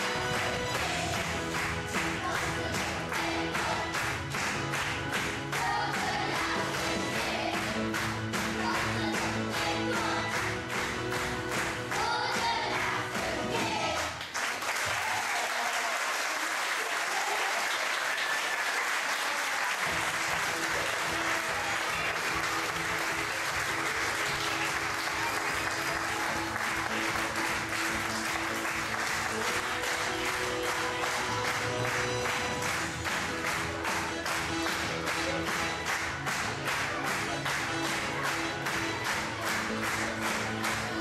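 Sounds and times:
music: 0.0s - 14.4s, 19.8s - 41.0s
audience applauding: 3.1s - 6.0s, 14.0s - 41.0s.

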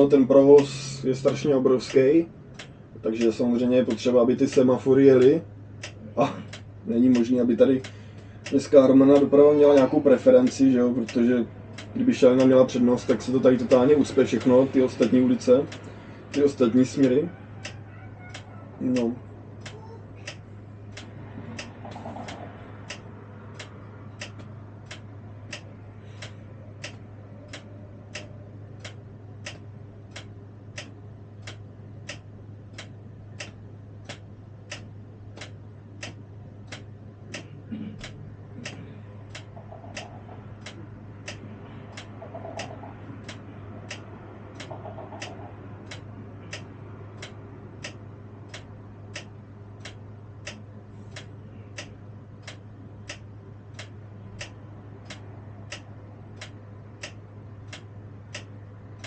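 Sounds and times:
turn-signal indicator ticking: 0.0s - 59.0s.

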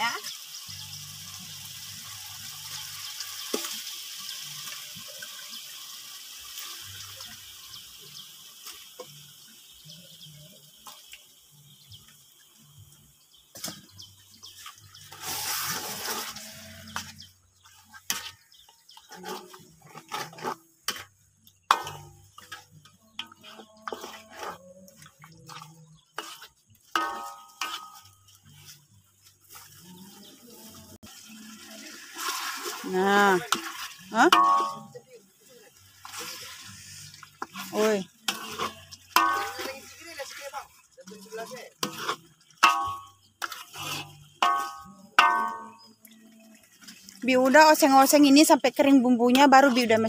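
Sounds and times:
paste sizzling in a wok: 0.0s - 48.6s
ladle scraping and knocking wok: 13.5s - 31.0s, 31.6s - 35.0s, 35.8s - 45.9s.

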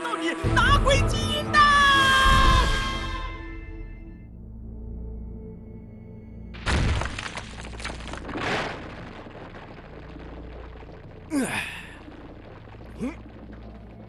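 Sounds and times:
low background music: 0.0s - 8.2s
ice shattering crash: 6.6s - 12.0s.

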